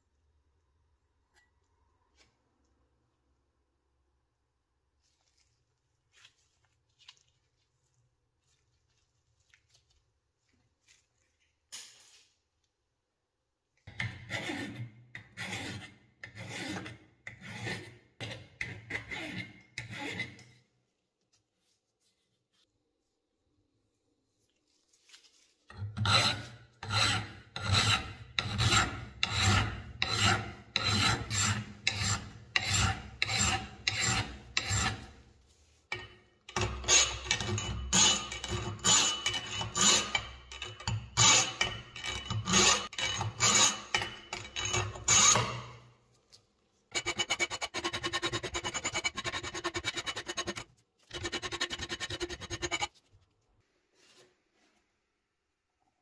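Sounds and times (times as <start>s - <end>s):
hand tool rasping: 25.7s - 35.2s, 35.9s - 45.8s, 46.9s - 53.0s.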